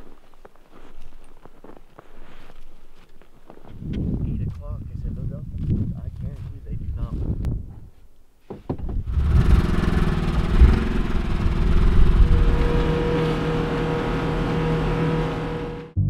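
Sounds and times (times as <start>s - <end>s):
vehicle engine running: 9.0s - 16.0s.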